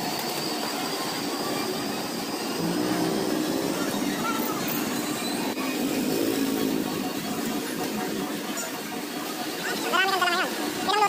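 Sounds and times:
faint voices: 0.0 - 11.0
street traffic: 0.0 - 11.0.

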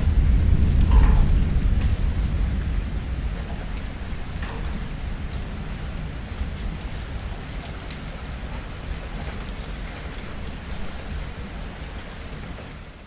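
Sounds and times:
distant thunder rumble: 0.0 - 11.5
steady rainfall: 0.0 - 13.0.

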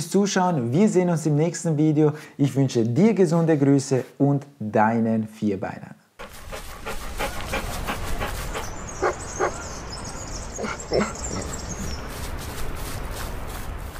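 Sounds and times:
dog panting: 6.2 - 9.8, 10.6 - 12.0
dog yipping: 7.2 - 9.8.

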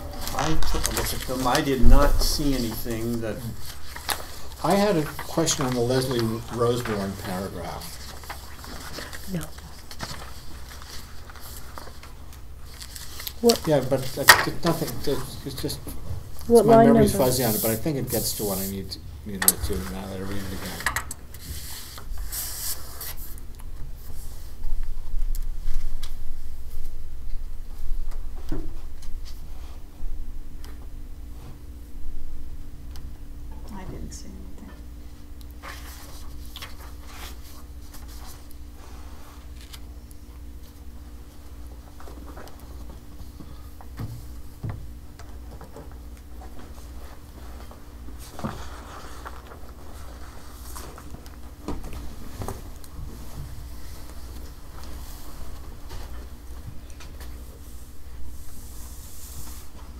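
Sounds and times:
steady low hum: 0.0 - 59.9
paper rustle: 0.1 - 15.7, 35.6 - 39.9, 46.3 - 59.9.

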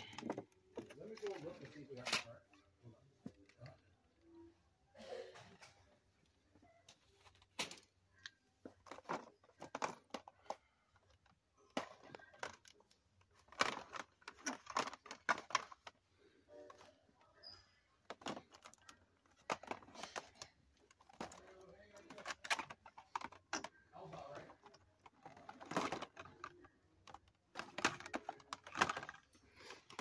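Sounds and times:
plastic blister packs clicking: 18.1 - 30.0.

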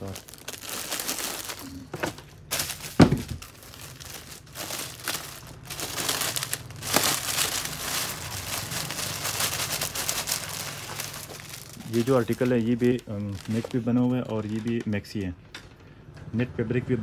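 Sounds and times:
plastic packaging crinkling: 0.0 - 15.4
thump: 3.0 - 3.4.

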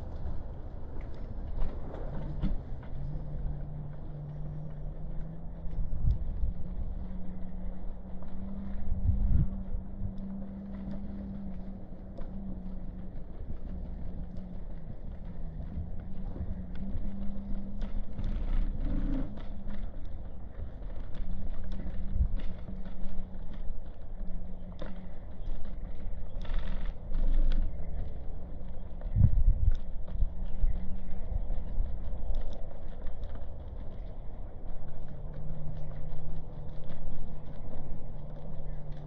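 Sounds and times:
traffic hum: 0.0 - 39.0.

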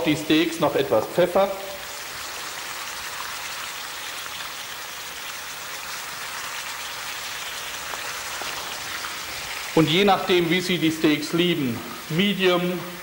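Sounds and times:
steaks sizzling in oil: 1.6 - 10.4.

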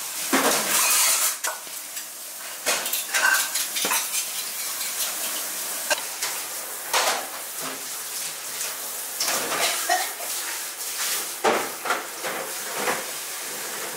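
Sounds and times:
dishes and utensils clattering: 0.3 - 7.8, 9.2 - 10.6, 11.4 - 13.9.

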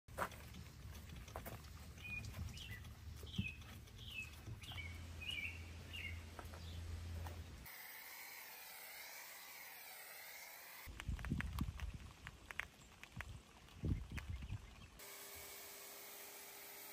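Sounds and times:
small bird chirping: 0.9 - 6.9, 12.2 - 15.0.

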